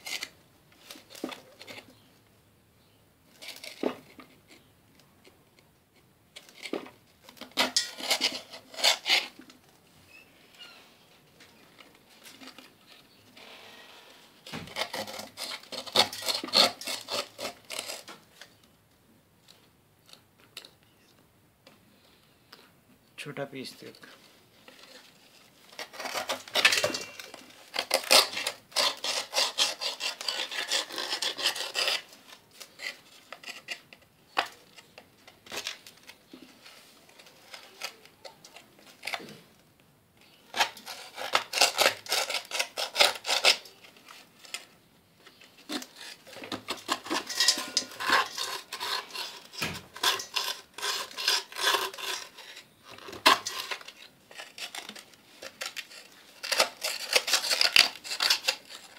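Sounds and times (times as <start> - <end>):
knife scraping clay: 0.0 - 2.1, 3.3 - 5.4, 6.0 - 10.8, 11.6 - 18.6, 24.1 - 39.5, 40.3 - 58.9.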